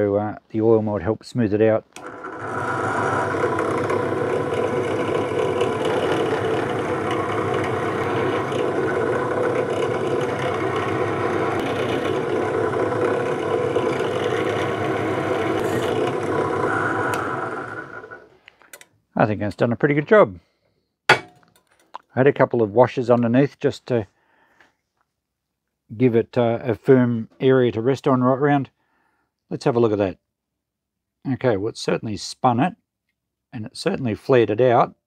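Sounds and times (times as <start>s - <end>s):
drill press running: 1.9s - 18.4s.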